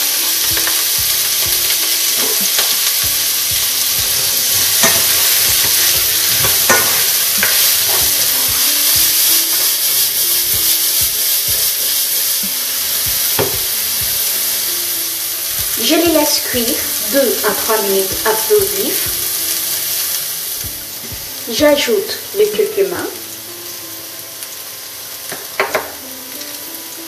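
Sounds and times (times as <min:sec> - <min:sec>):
vegetables sizzling in oil: 0:00.0 - 0:27.0
spatula scraping pan: 0:03.8 - 0:09.8.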